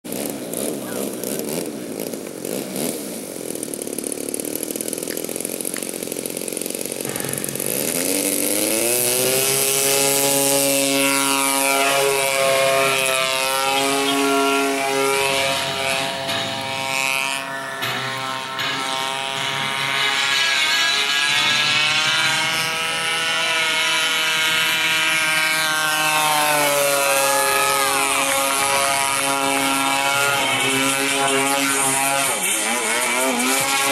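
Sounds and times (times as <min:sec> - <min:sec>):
model airplane engine revving: 0:00.1 - 0:33.9.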